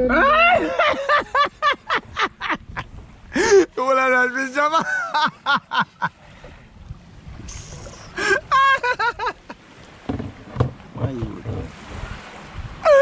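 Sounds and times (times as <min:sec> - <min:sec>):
person exclaiming: 0:00.0 - 0:00.8
wind rumbling: 0:00.0 - 0:03.6, 0:06.4 - 0:13.0
microphone handling noise: 0:10.0 - 0:11.9.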